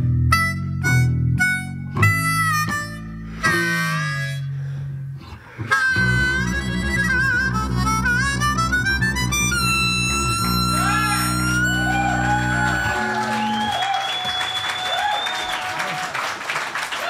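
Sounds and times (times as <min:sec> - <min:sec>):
bowed double bass: 0:00.0 - 0:13.6
harmonica: 0:00.0 - 0:14.6
audience clapping and cheering: 0:10.8 - 0:17.0.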